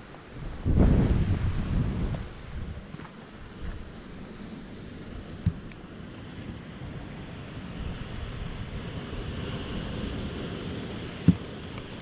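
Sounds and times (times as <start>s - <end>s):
surf from the sea: 0.0s - 12.0s
wind blowing over microphone: 0.0s - 12.0s
dull thump: 11.2s - 11.5s.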